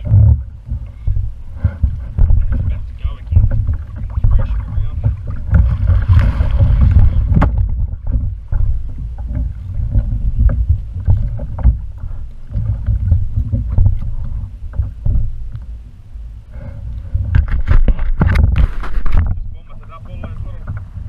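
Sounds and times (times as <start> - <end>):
gear knocks and clicks: 0.0 - 15.7
wind buffeting microphone: 0.0 - 15.8, 16.5 - 21.0
water slapping against hull: 0.0 - 21.0.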